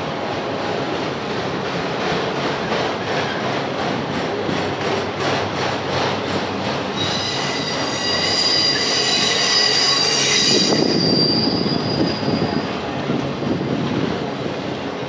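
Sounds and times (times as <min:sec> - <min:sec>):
train wheels rumbling on rails: 0:00.0 - 0:15.0
high-pitched wheel squeal: 0:06.9 - 0:12.7.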